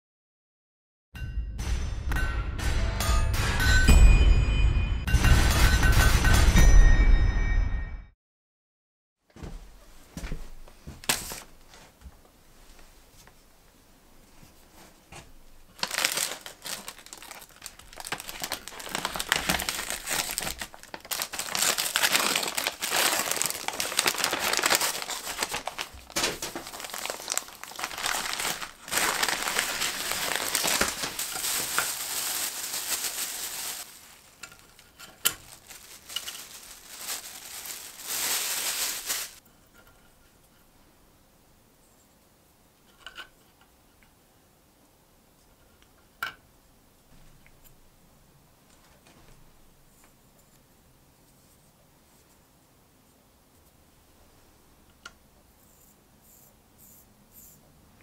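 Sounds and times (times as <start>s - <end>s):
paper bag crumpling: 15.7s - 39.4s.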